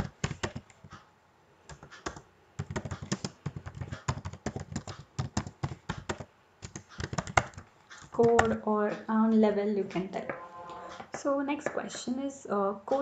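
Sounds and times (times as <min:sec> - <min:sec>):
typing on computer keyboard: 0:00.0 - 0:01.0, 0:01.7 - 0:08.6.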